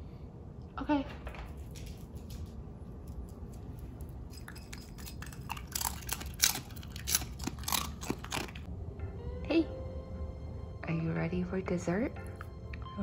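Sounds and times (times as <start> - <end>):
dog crunching kibble: 1.8 - 8.7.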